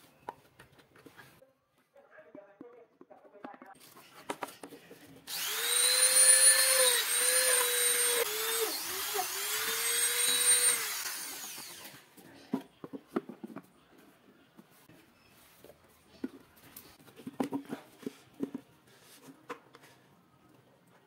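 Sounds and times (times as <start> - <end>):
rotary tool grinding plastic: 5.2 - 12.1.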